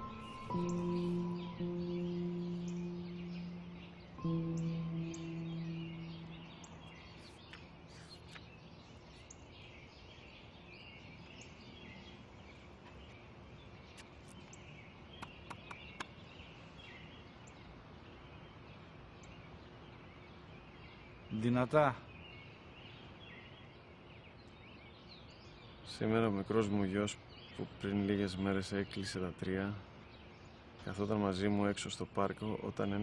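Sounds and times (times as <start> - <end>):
birds chirping: 0.0 - 33.0
sharp clicks: 15.2 - 16.1.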